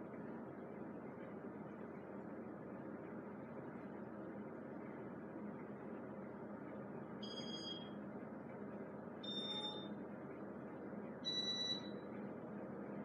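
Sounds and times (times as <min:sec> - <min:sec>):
fan whir: 0:00.0 - 0:13.0
short high beeps: 0:09.2 - 0:09.9.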